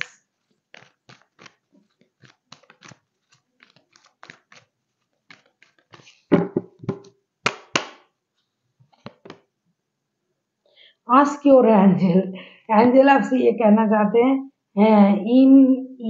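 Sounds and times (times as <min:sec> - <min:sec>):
cards being shuffled: 0:00.0 - 0:08.0, 0:08.8 - 0:09.5
card slaps: 0:02.2 - 0:04.7, 0:05.3 - 0:08.1.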